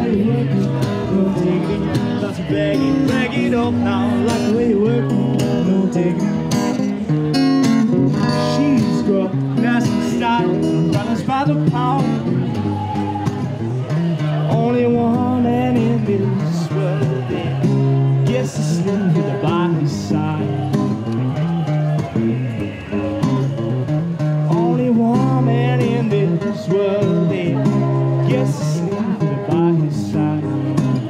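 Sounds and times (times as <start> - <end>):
man singing: 0.0 - 7.1, 7.9 - 13.2, 13.8 - 23.6, 24.5 - 31.0
acoustic guitar: 0.0 - 31.0.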